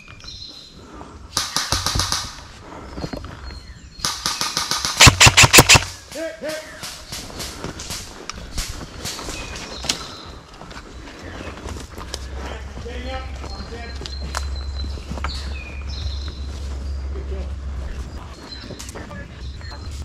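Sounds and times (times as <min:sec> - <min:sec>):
airsoft rifle full-auto bursts: 0:04.3 - 0:06.0.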